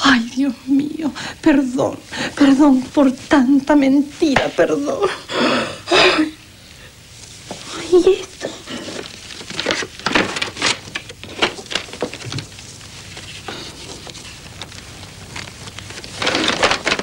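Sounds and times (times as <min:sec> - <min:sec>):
paper crinkling and rustling: 0:07.3 - 0:17.0.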